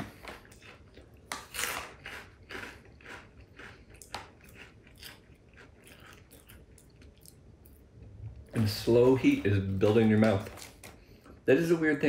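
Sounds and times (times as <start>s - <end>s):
crunchy snack chewing: 0.0s - 7.4s.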